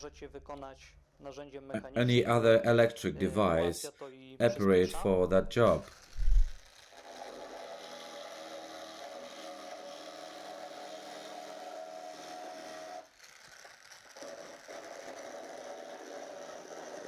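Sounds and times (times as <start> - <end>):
rotary milling tool whining: 5.0 - 17.0.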